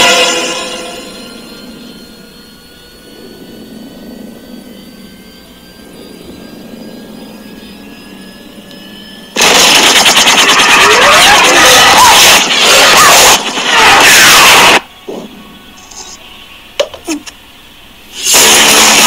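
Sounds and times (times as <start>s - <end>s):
faint rising tones: 0.6s - 9.4s
helicopter engine whine: 0.8s - 14.0s
rapid chopping noise: 9.4s - 13.6s.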